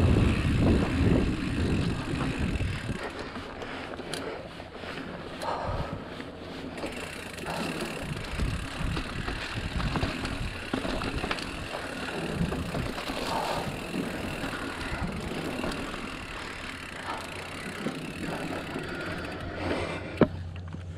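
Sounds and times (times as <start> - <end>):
bike rattles and knocks: 0.0 - 20.9
bike tyre rumble on dirt: 0.0 - 20.9.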